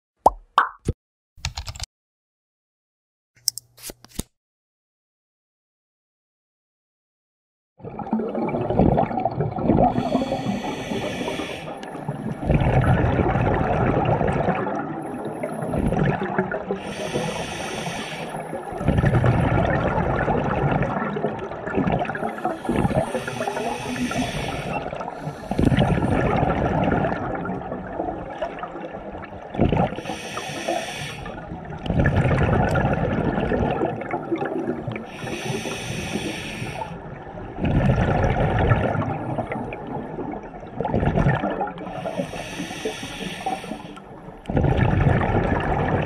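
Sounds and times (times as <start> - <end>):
exhaled bubbles gurgling: 7.8 - 46.0
regulator inhale hissing: 9.9 - 12.0, 16.8 - 18.5, 22.3 - 26.1, 30.0 - 31.4, 35.1 - 37.0, 41.9 - 44.1.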